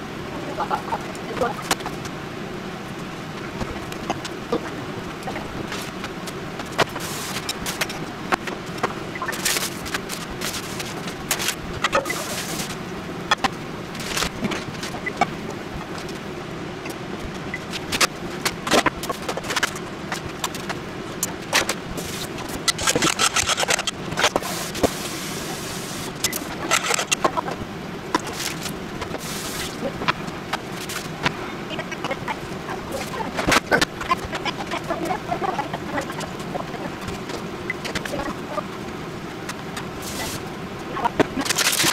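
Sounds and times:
steady low hum: 0.0s - 41.9s
chopsticks beating eggs in a bowl: 22.6s - 24.4s.

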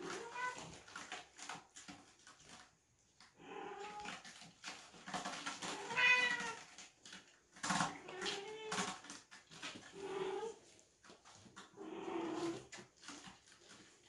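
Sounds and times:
cats meowing: 0.0s - 0.8s, 3.4s - 4.2s, 5.5s - 6.8s, 7.7s - 9.0s, 9.9s - 10.6s
kittens scuffling on scratching post: 0.0s - 14.0s.

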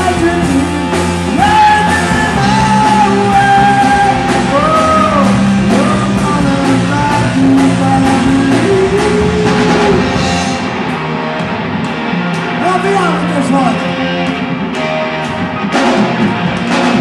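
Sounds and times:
man singing: 0.0s - 10.3s
drum kit: 0.0s - 17.0s
electric guitar: 0.0s - 17.0s.

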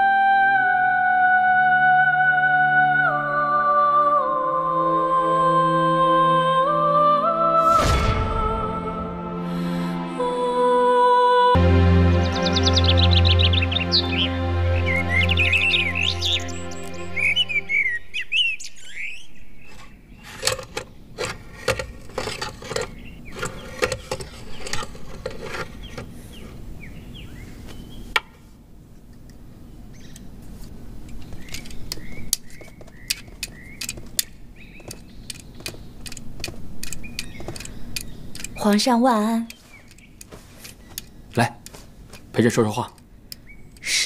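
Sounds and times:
small birds chirping: 12.2s - 20.4s, 22.8s - 24.9s, 25.7s - 28.2s, 29.6s - 30.4s, 31.0s - 44.0s.

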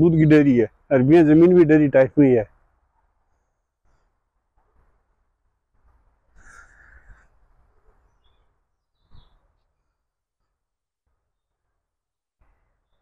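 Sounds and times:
bird chirps: 6.4s - 10.6s.

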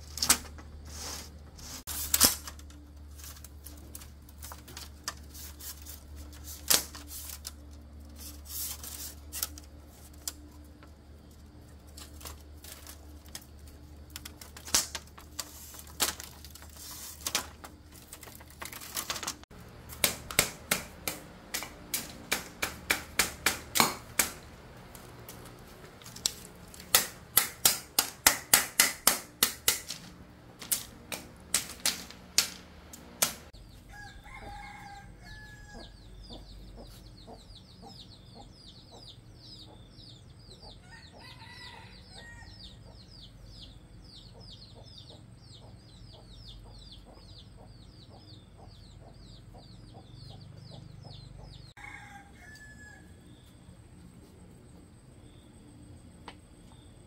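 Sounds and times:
chickens clucking: 34.3s - 39.9s, 44.2s - 51.7s.

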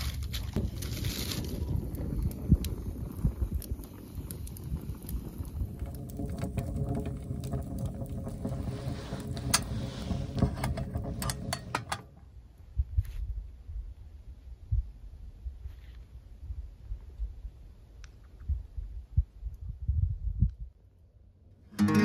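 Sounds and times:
firewood crackling and popping: 0.0s - 12.3s
low steady rumble: 0.6s - 12.9s.

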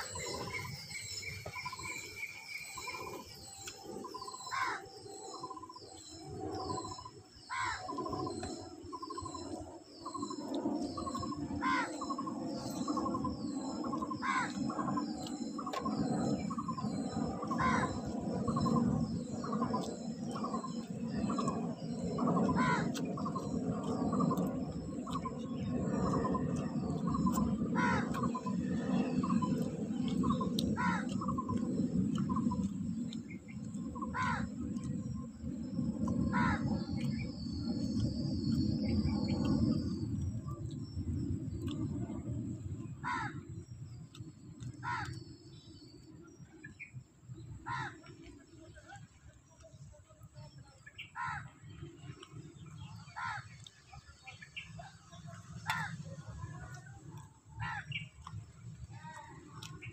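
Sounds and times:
steady low rumble: 0.0s - 59.9s
crows cawing: 4.5s - 4.8s, 7.5s - 7.9s, 11.6s - 12.0s, 14.2s - 14.5s, 17.5s - 17.9s, 22.5s - 22.9s, 27.8s - 28.2s, 30.8s - 31.1s, 34.1s - 34.4s, 36.3s - 36.6s, 43.0s - 43.4s, 44.8s - 45.1s, 47.6s - 48.0s, 51.2s - 51.4s, 53.2s - 53.5s, 55.7s - 55.9s, 57.6s - 58.0s.

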